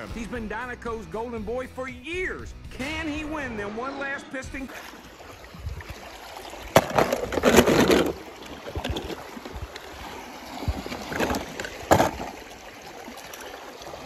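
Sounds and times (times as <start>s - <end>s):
water sloshing: 2.9s - 14.0s.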